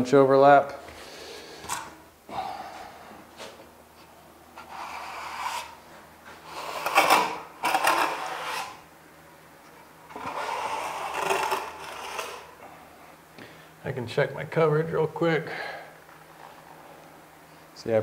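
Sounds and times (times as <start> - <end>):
trowel scraping membrane: 4.6 - 5.8, 6.4 - 8.8, 10.1 - 12.6.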